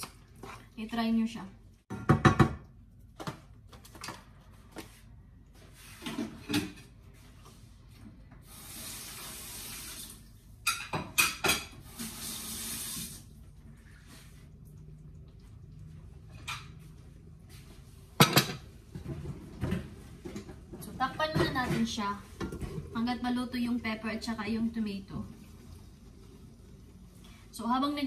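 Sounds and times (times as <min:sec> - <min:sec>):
kitchen tap running: 0:08.4 - 0:13.5
dishes clattering: 0:10.6 - 0:11.8, 0:18.2 - 0:20.6.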